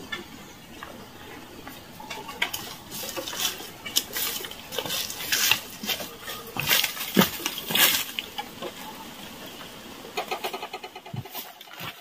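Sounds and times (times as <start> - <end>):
footsteps through dry leaves: 2.6 - 8.3.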